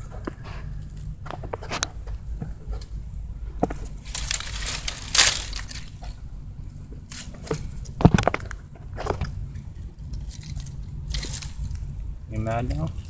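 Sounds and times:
dry leaves crunching and rustling: 3.7s - 6.2s, 10.0s - 13.0s.

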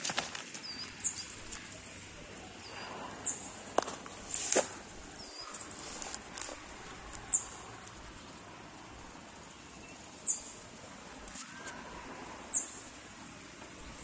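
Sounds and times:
outdoor background noise: 0.0s - 14.0s
small bird chirping: 0.6s - 14.0s.

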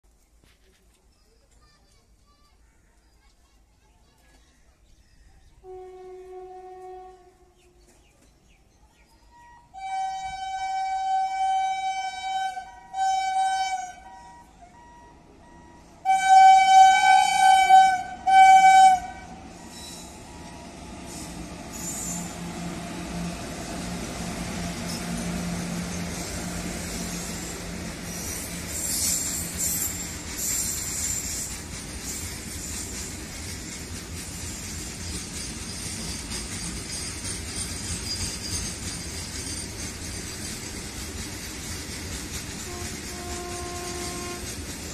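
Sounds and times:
freight train rumbling past: 5.5s - 44.9s
locomotive horn blasts: 5.6s - 7.8s, 9.4s - 19.8s, 42.7s - 44.6s.

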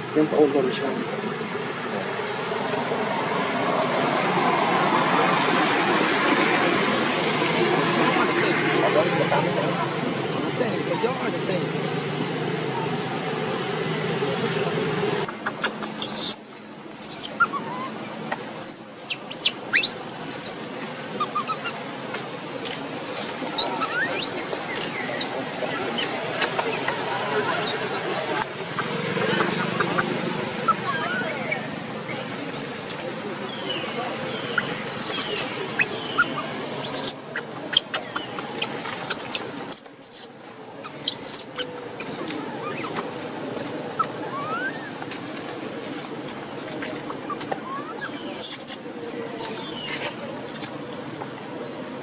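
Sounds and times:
baby monkey squealing: 15.6s - 16.4s, 17.0s - 18.0s, 18.6s - 20.6s, 21.2s - 21.8s, 23.6s - 27.0s, 28.8s - 31.6s, 32.5s - 33.0s, 34.5s - 41.8s, 42.6s - 43.1s, 43.9s - 45.0s, 47.3s - 50.0s
high-pitched animal chirps: 16.0s - 16.4s, 34.6s - 41.7s.

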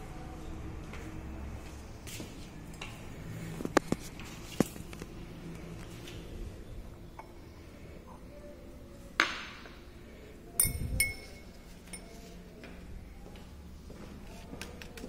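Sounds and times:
mortar and pestle clinking: 10.6s - 12.1s.

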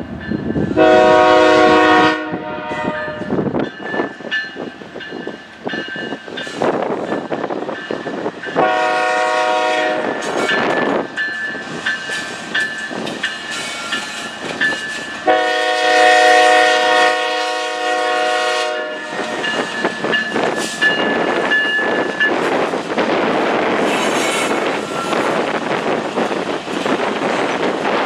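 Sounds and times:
train rumble: 0.0s - 28.0s
locomotive air horn blasts: 0.8s - 3.4s, 8.6s - 10.4s, 15.2s - 19.6s.

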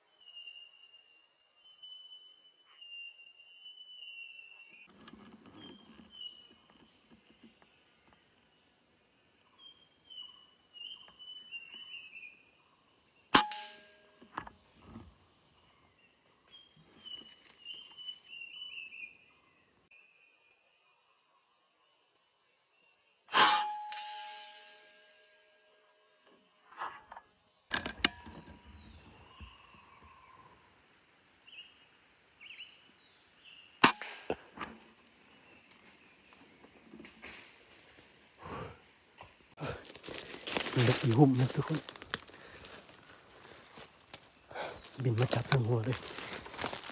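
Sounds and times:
small bird singing: 9.5s - 12.8s, 15.6s - 19.6s, 31.5s - 33.8s
bird chirps: 9.5s - 15.0s, 28.2s - 30.6s
high insect drone: 34.2s - 46.9s.

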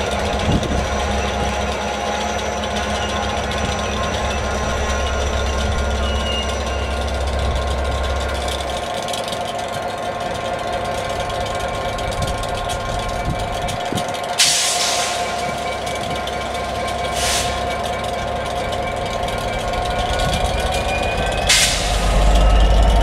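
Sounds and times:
diesel locomotive engine idling: 0.0s - 23.0s
deep rumble: 18.5s - 23.0s.

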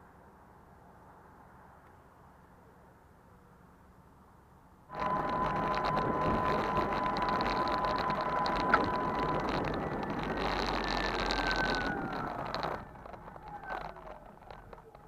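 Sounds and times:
higher whine sliding down: 4.9s - 15.0s
scooter motor whine: 4.9s - 15.0s
tyre and ground noise: 4.9s - 15.0s.

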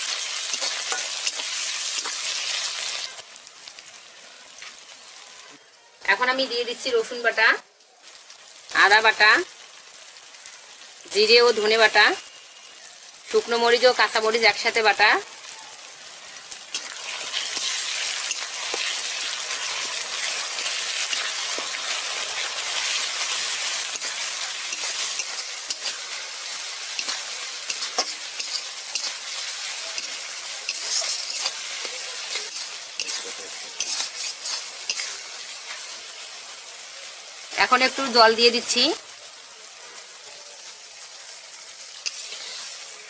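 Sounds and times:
food sizzling in hot oil: 0.0s - 43.0s
spatula scraping a metal pan: 30.0s - 35.2s, 42.0s - 42.8s.

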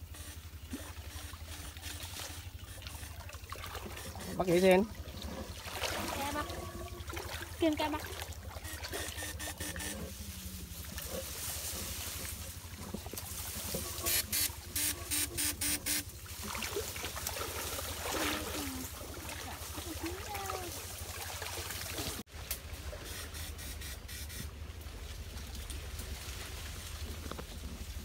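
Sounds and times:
short buzzing pulses: 0.0s - 4.8s, 8.5s - 10.6s, 13.6s - 16.3s, 22.9s - 24.6s
water splashing around wading legs: 0.6s - 9.9s, 15.9s - 22.3s.

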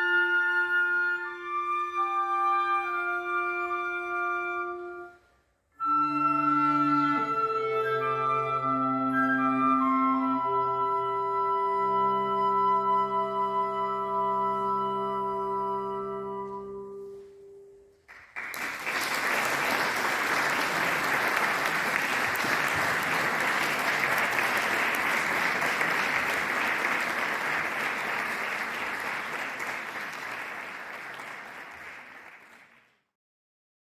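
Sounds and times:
woodwind and cello chord: 5.8s - 17.8s
audience applause: 18.1s - 33.0s.

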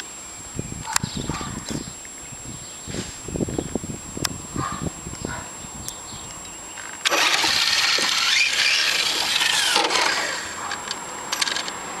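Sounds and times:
rc car motor whining: 6.8s - 11.7s.

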